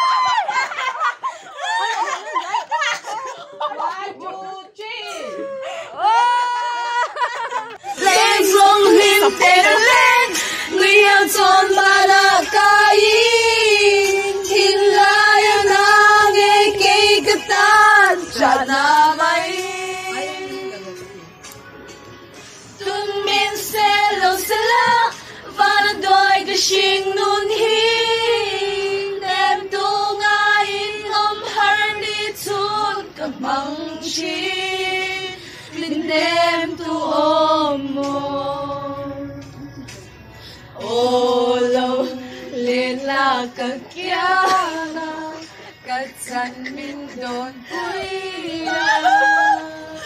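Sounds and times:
woman singing: 0:07.9 - 0:21.1, 0:40.8 - 0:50.0.

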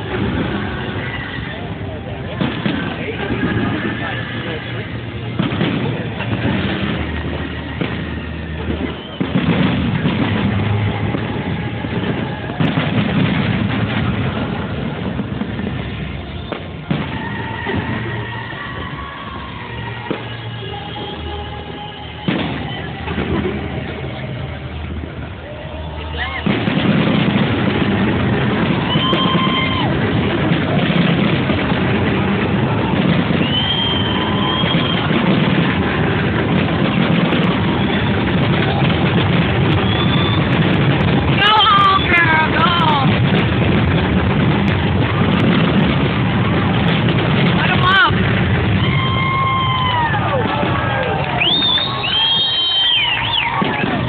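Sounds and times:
fireworks booming and crackling: 0:00.0 - 0:54.0
sharp firework bang: 0:02.2 - 0:18.7, 0:22.2 - 0:23.8, 0:26.3 - 0:54.0
high thin whistle: 0:08.8 - 0:09.4, 0:33.4 - 0:35.0, 0:51.4 - 0:53.5.

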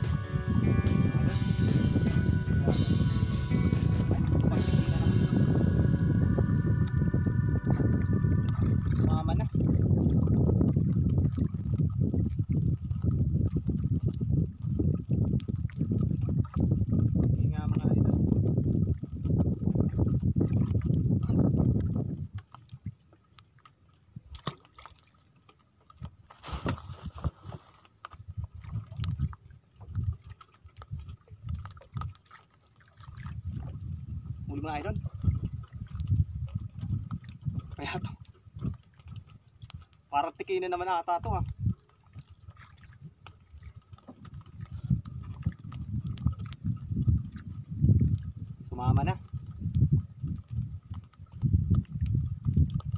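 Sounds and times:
loud low rumble: 0:00.0 - 0:10.4
water lapping at a boat: 0:00.0 - 0:52.9.

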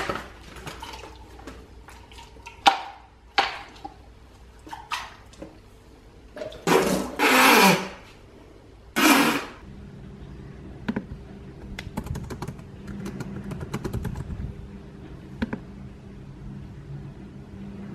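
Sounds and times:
steady low hum: 0:09.6 - 0:17.9
computer keyboard typing: 0:12.0 - 0:14.3.

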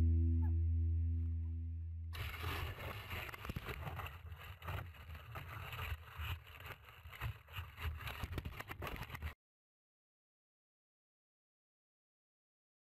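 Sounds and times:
scraping and crackling: 0:02.1 - 0:09.4.

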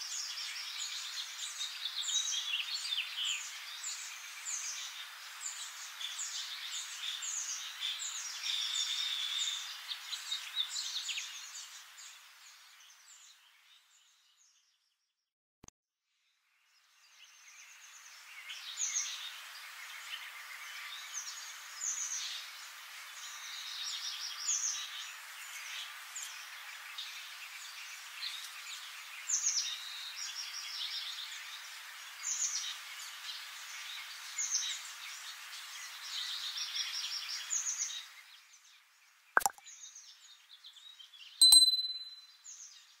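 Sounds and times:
sharp click: 0:41.4 - 0:42.0
short bell ding: 0:41.4 - 0:42.1.

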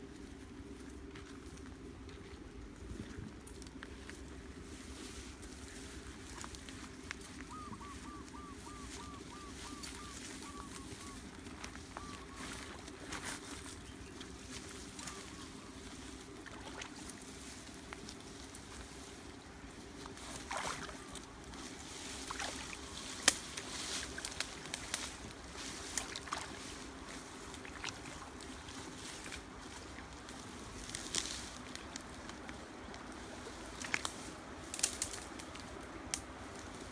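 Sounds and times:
steady low hum: 0:00.0 - 0:36.9
water sloshing around legs: 0:16.1 - 0:18.1, 0:20.0 - 0:30.2.

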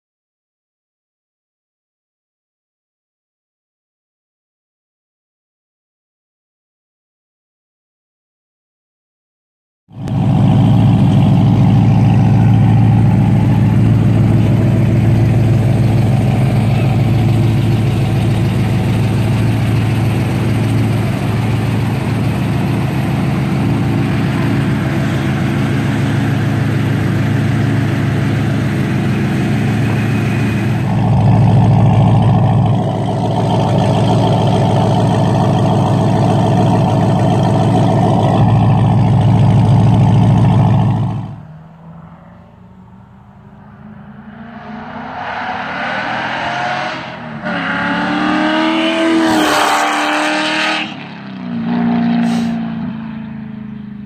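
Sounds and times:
v eight engine idling: 0:10.0 - 0:41.9.

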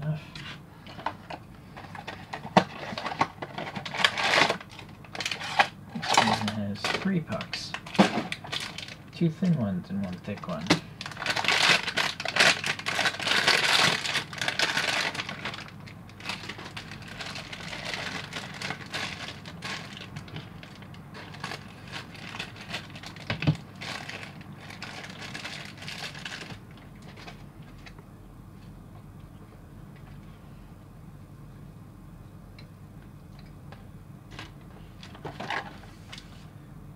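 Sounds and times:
plastic wrapping crinkling: 0:01.8 - 0:09.1, 0:10.3 - 0:27.8.

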